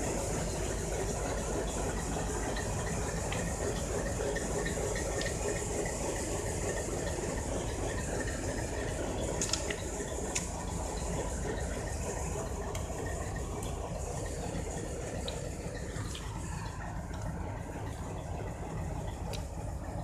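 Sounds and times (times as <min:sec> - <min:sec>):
locomotive engine idling: 0:00.0 - 0:20.0.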